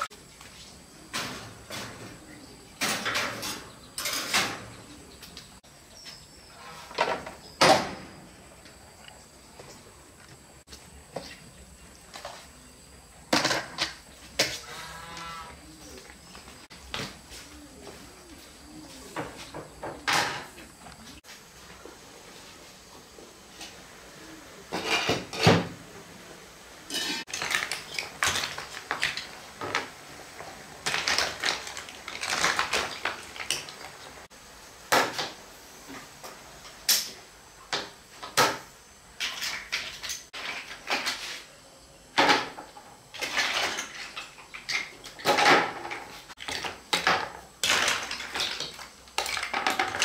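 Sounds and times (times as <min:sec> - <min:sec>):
dishes and pots knocking and scraping: 0:02.8 - 0:04.8, 0:19.1 - 0:20.6, 0:24.7 - 0:25.8, 0:26.9 - 0:29.9, 0:42.2 - 0:50.0.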